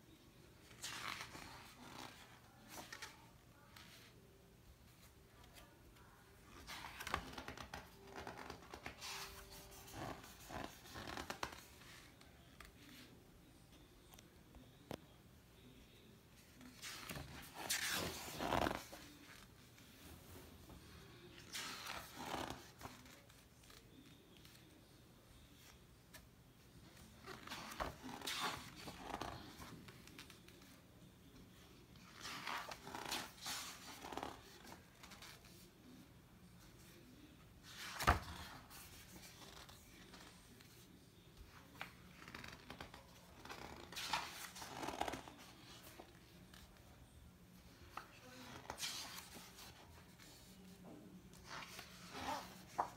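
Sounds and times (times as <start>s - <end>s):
book pages rustling and flapping: 0.6s - 4.1s, 4.9s - 13.1s, 16.4s - 24.8s, 25.4s - 36.0s, 37.6s - 46.9s, 47.6s - 52.9s
page rustling as turned: 0.6s - 4.1s, 6.6s - 12.1s, 16.5s - 19.5s, 41.5s - 46.7s, 51.4s - 52.9s.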